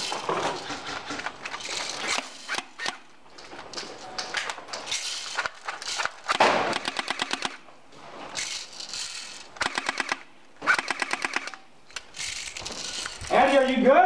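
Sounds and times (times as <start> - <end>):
airsoft guns firing bursts: 6.3 - 7.6, 9.6 - 11.6.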